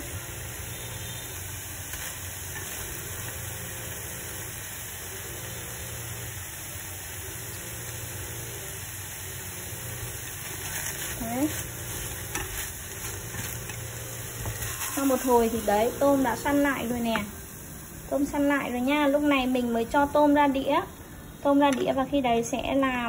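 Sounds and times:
shrimp sizzling in a pan: 0.0s - 23.0s
wooden spatula scraping and clicking: 10.4s - 15.3s.

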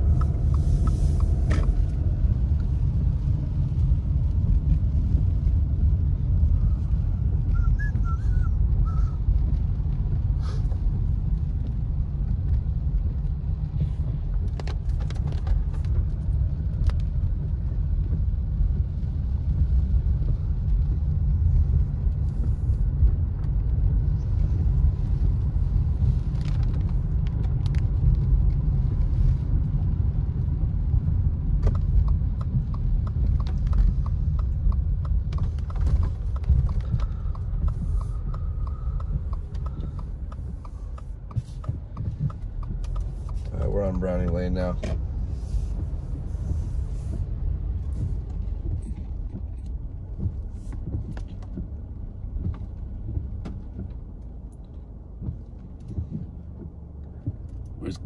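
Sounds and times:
car engine and tyre rumble: 0.0s - 58.0s
light regular ticking: 14.3s - 58.0s.

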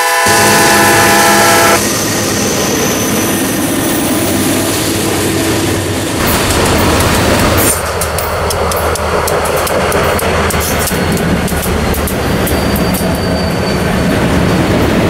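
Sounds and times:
locomotive horn: 0.0s - 2.0s
diesel locomotives rumbling past: 0.0s - 15.0s
wheels on rails: 2.0s - 15.0s.

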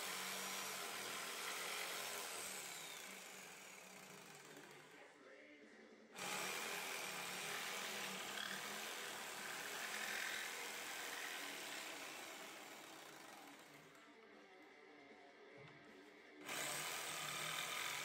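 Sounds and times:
jigsaw cutting wood: 0.0s - 4.7s, 6.2s - 13.8s, 16.4s - 18.0s.

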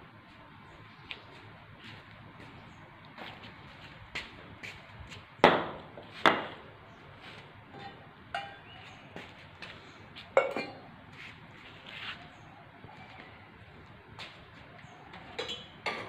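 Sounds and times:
knocks on concrete floor: 5.4s - 6.6s
steel bowls clinking and ringing: 7.8s - 8.8s.

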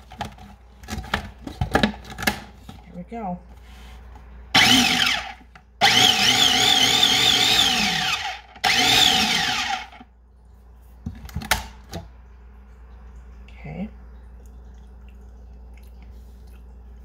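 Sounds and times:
food processor motor whining: 4.6s - 10.0s.

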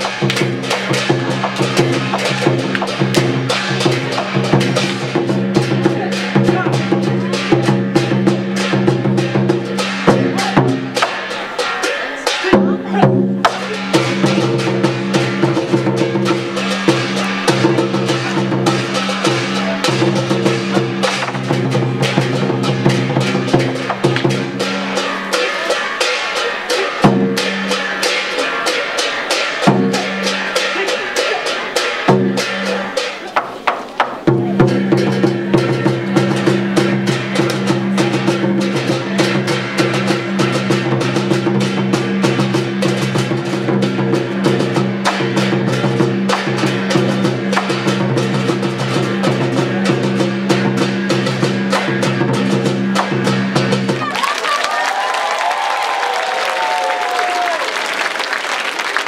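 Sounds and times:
deep ringing drum stroke: 0.0s - 33.1s
rapid drum strikes: 0.0s - 54.3s
other percussion: 0.0s - 59.0s.

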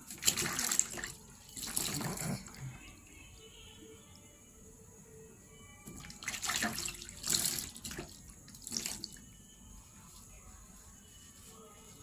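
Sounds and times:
water splashing: 0.0s - 2.6s, 6.0s - 9.2s.

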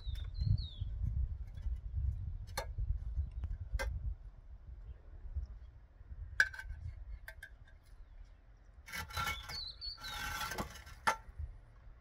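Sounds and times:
wood scraping and rubbing: 8.8s - 11.3s.

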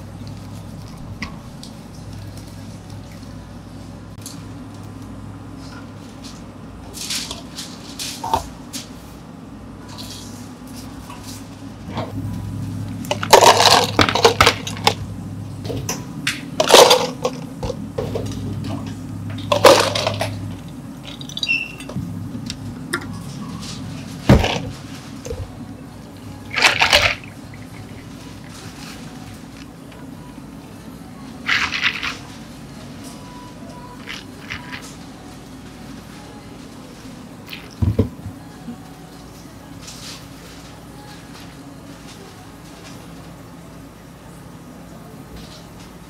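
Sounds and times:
ice cubes clattering into cups: 13.1s - 15.0s, 16.6s - 17.4s, 19.4s - 20.4s, 26.5s - 29.1s, 31.5s - 32.4s.

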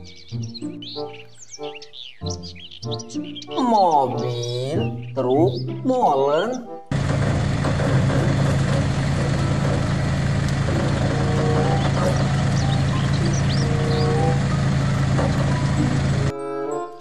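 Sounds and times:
diesel engines droning: 6.9s - 16.3s.

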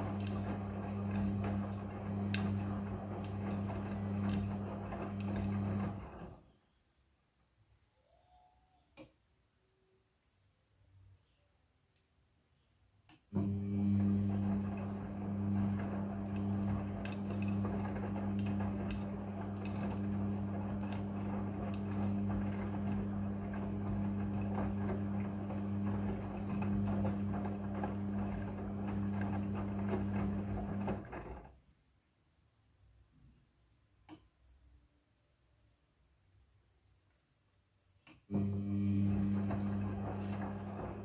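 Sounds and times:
washing machine motor hum: 0.0s - 6.5s, 13.3s - 31.5s, 38.3s - 41.0s.

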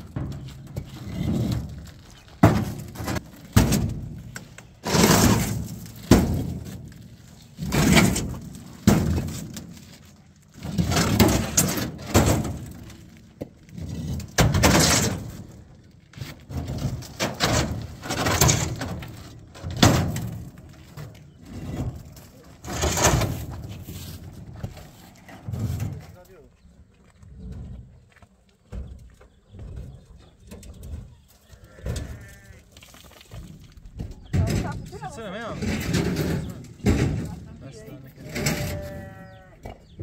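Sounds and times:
concrete blocks thudding on steel: 2.4s - 6.9s, 7.6s - 9.7s.

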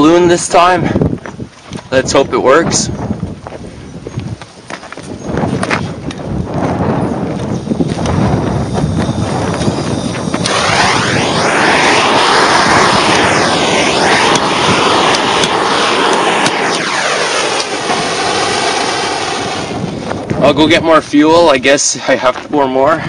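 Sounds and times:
loud rushing noise: 8.2s - 20.6s.

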